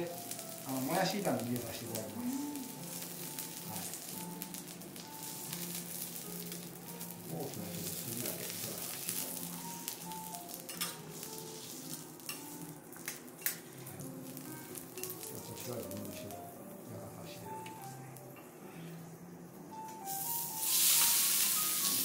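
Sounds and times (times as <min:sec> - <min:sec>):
beef sizzling on a griddle: 0:00.0 - 0:16.4, 0:20.0 - 0:22.0
metal blades clicking on griddle: 0:10.7 - 0:11.0.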